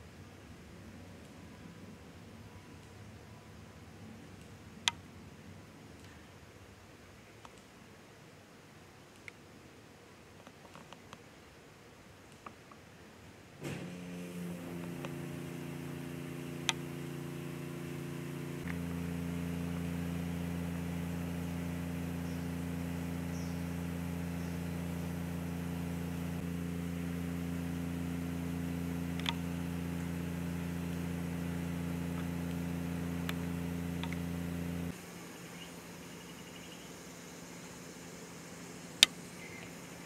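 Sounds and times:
faint clicks: 9.1s - 9.4s
machine humming: 13.6s - 40.0s.

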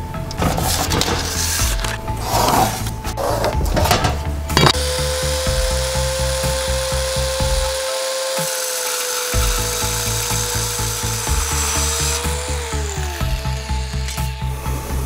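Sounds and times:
background music with beat: 0.0s - 15.0s
circular saw cutting: 4.6s - 15.0s.

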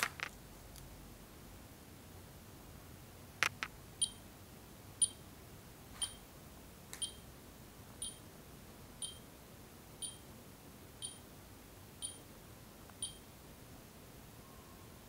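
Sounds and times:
sharp clicks: 3.4s - 4.2s.

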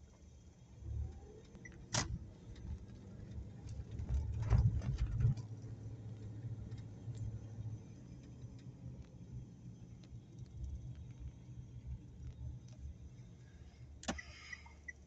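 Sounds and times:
low car rumble: 0.0s - 15.0s
knocks and rattles in car: 3.6s - 5.6s.

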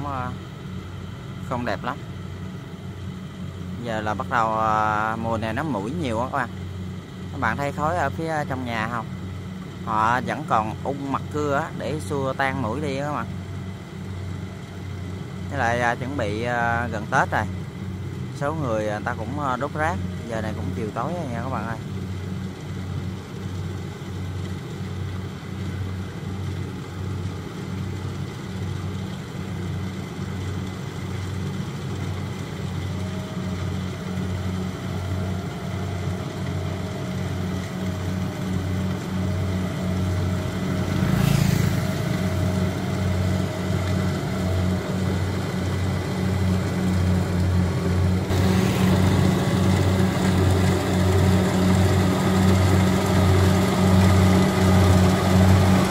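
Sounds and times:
faint whine: 0.0s - 55.9s
harvester diesel engine running: 0.0s - 55.9s.

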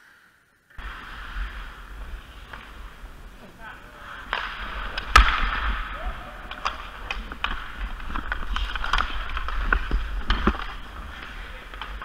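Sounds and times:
skate blades scraping ice: 0.0s - 12.0s
hockey sticks clacking on puck: 0.8s - 12.0s.

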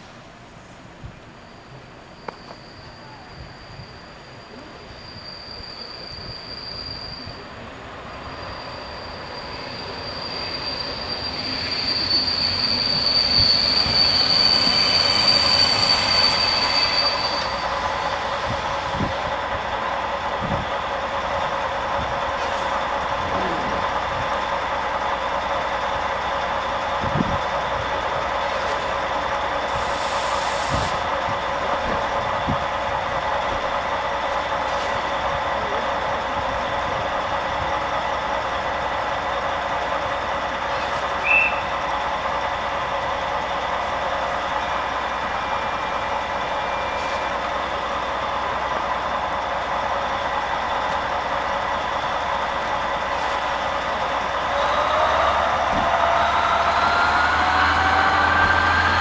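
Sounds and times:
brief high squeak: 1.5s - 18.4s, 46.6s - 47.4s
short hiss: 29.8s - 31.0s.

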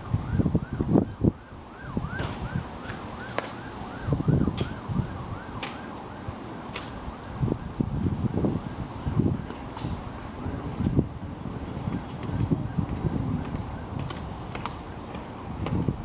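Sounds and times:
siren yelping: 0.0s - 10.6s, 11.9s - 14.0s
wind on microphone: 0.0s - 16.0s.

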